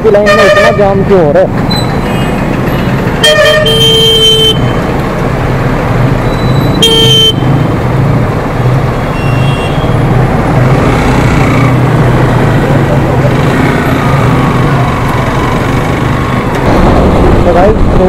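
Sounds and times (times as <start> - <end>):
motorcycle engines running: 0.8 - 18.0
vehicle horn honking: 3.2 - 4.8, 6.8 - 7.5, 9.2 - 10.0.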